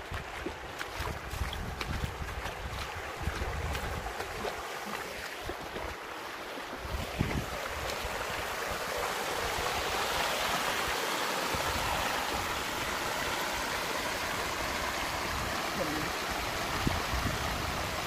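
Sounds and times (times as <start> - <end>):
stream water over rocks: 0.0 - 18.0
wind buffeting microphone: 1.0 - 4.6, 6.7 - 8.8, 16.6 - 18.0.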